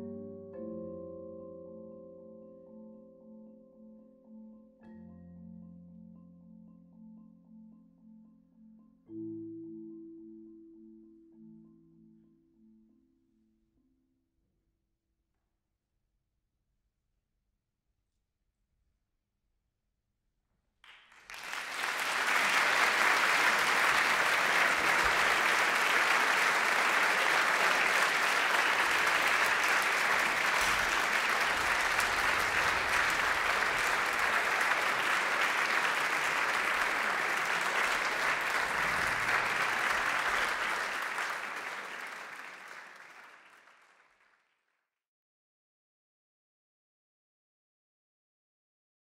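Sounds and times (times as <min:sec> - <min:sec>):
audience applauding: 0:20.9 - 0:44.4.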